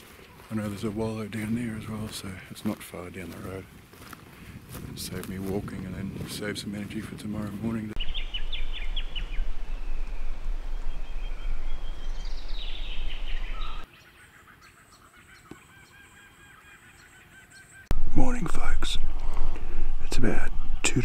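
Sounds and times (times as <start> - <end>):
birds calling: 0.0 - 4.8, 7.3 - 21.0
wind rumble on microphone: 3.3 - 13.8.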